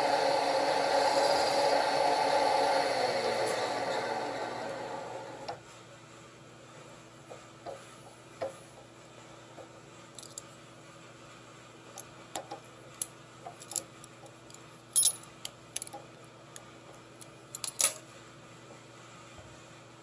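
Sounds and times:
metal tools clicking and clinking: 10.2 - 10.5, 14.9 - 16.0, 17.5 - 18.0.

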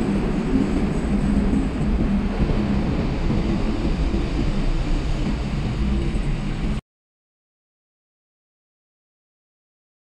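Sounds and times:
car engine and tyres rumbling: 0.0 - 6.8.

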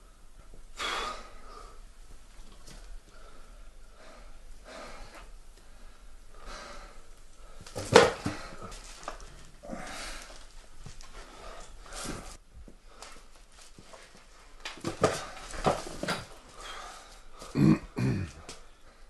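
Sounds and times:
person breathing heavily: 3.0 - 13.3, 15.3 - 19.0.

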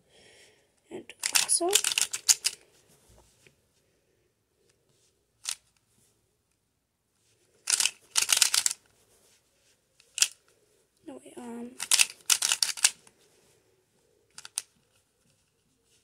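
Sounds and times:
speed cube layers clicking: 1.2 - 2.6, 7.7 - 8.8, 10.1 - 10.4, 11.8 - 13.0, 14.3 - 14.7.

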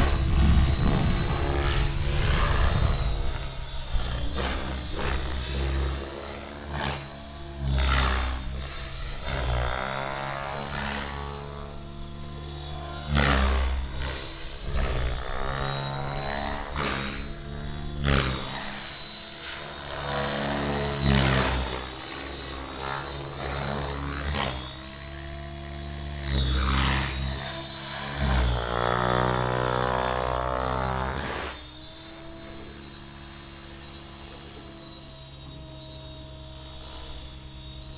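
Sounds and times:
helicopter rotor blade beat: 0.0 - 37.9
high whine: 0.0 - 37.9.

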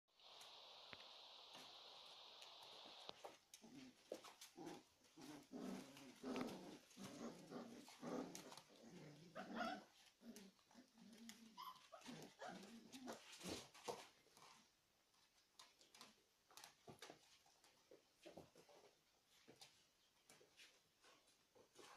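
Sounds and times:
puppies play-growling: 2.4 - 14.6.

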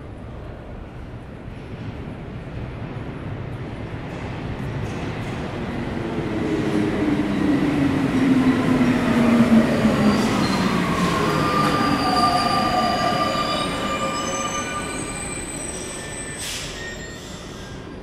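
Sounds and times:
metro train running noise: 0.0 - 18.0
train wheel squeals: 9.6 - 18.0.

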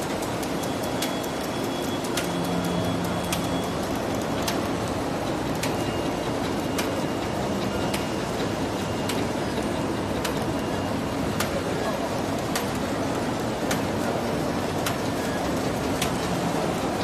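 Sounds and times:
machine mechanical din: 0.0 - 17.0.

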